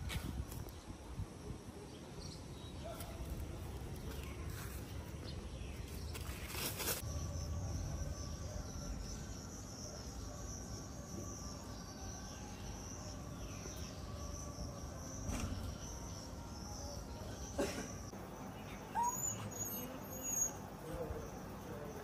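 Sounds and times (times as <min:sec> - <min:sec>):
low outdoor rumble: 0:07.0 - 0:09.6.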